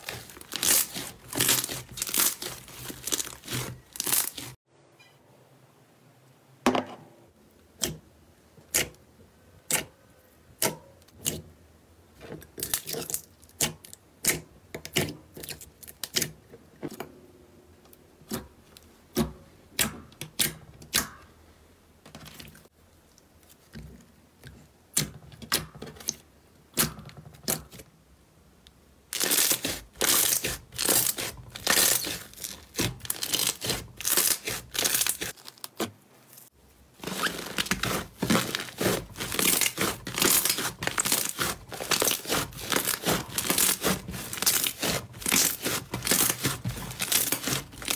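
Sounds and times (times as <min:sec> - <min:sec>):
slime popping and crackling: 0:00.0 - 0:04.6, 0:29.2 - 0:35.9, 0:37.0 - 0:47.9.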